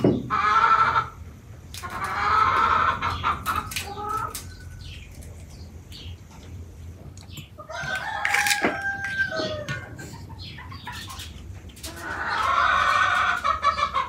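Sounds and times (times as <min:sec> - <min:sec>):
chickens calling: 0:00.0 - 0:14.0.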